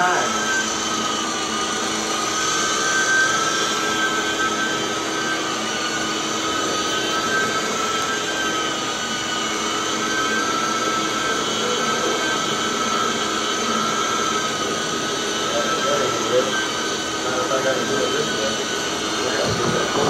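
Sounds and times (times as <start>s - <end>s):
carpet extraction tool whine: 0.0s - 20.0s.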